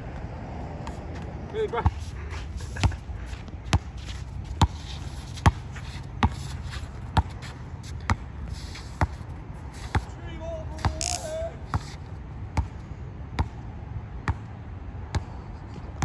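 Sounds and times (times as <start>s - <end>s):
basketball bouncing on hard court: 6.2s - 6.4s, 8.0s - 8.3s, 9.0s - 9.2s, 10.8s - 11.9s, 12.6s - 12.8s.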